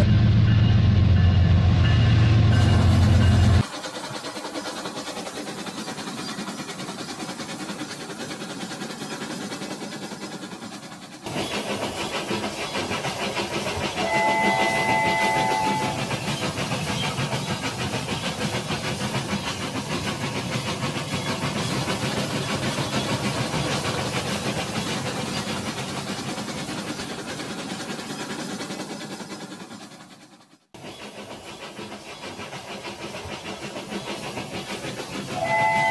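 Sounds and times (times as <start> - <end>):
toy train whistle: 14.0 - 16.0, 35.4 - 35.9.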